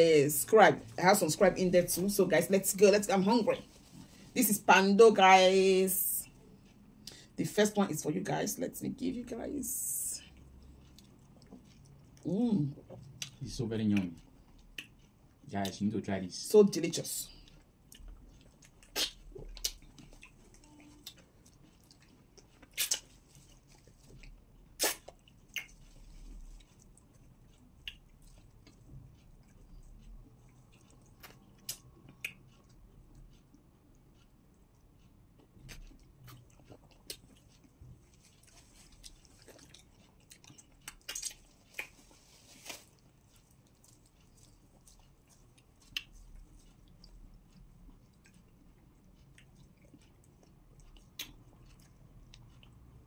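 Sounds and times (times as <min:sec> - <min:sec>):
chewing mouth smacks: 0:10.2 - 0:15.8, 0:17.4 - 0:53.0.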